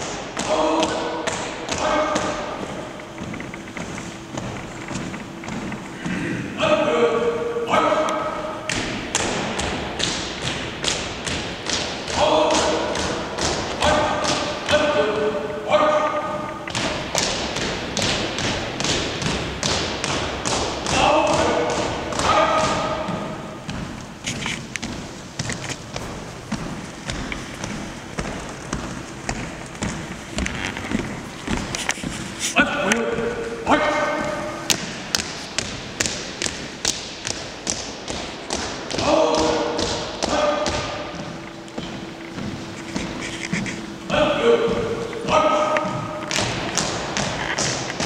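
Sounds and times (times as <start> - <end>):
marching footsteps on hard floor: 0.0 - 6.5, 8.2 - 48.0
person shouting command: 0.4 - 2.6, 6.6 - 8.6, 12.1 - 13.2, 13.8 - 16.5, 20.9 - 23.4, 32.6 - 34.6, 39.0 - 41.1, 44.1 - 46.2
person calling drill commands: 20.9 - 23.5, 32.4 - 34.7, 43.2 - 46.3.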